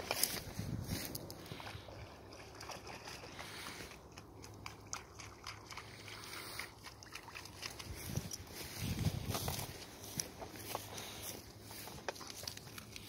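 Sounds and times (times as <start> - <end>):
water sloshing and trickling: 0.0 - 13.0.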